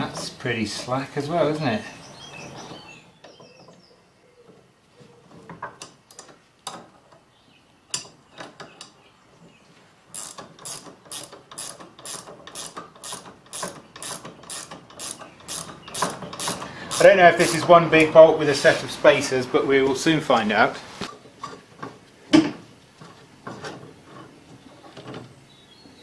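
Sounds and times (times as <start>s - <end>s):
ratchet spanner clicking: 10.1s - 17.7s.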